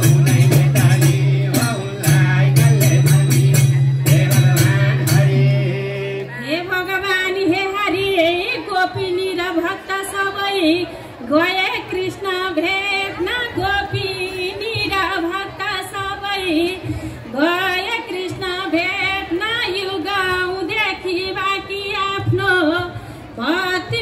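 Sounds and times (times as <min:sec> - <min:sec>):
musical accompaniment: 0:00.0 - 0:06.4
woman singing devotional song: 0:00.0 - 0:24.0.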